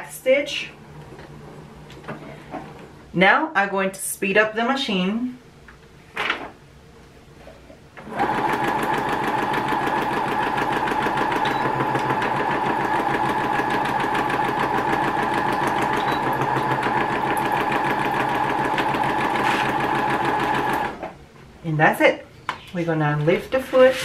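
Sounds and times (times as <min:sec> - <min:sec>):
sewing machine stitching: 0:08.0 - 0:21.1.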